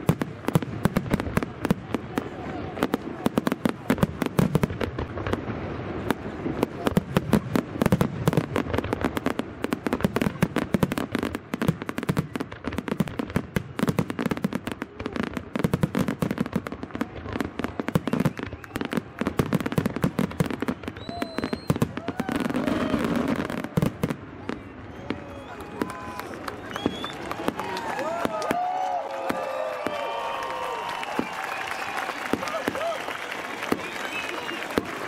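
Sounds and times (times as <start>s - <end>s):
deep firework booms: 0.0s - 24.4s
firework bangs and crackles: 0.0s - 35.0s.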